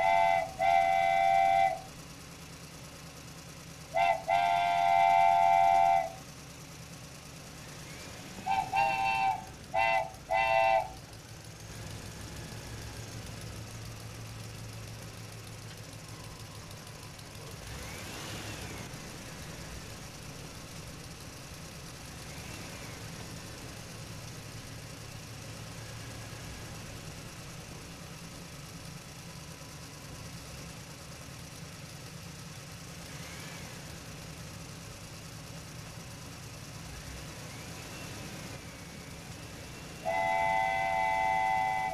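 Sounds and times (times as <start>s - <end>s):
short horn toots: 0.0s - 1.9s, 4.0s - 6.2s, 8.5s - 11.0s, 40.0s - 41.9s
low engine-like hum: 0.0s - 41.9s.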